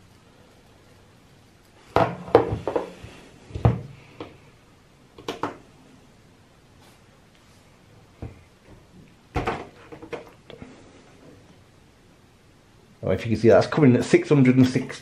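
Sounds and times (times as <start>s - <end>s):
objects knocking on a desk: 1.9s - 3.0s.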